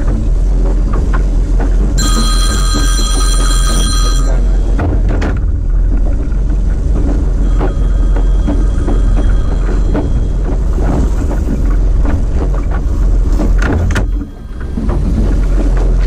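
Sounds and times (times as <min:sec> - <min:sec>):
constant low rumble: 0:00.0 - 0:16.0
electronic ringing tone: 0:02.0 - 0:04.9, 0:07.4 - 0:11.1.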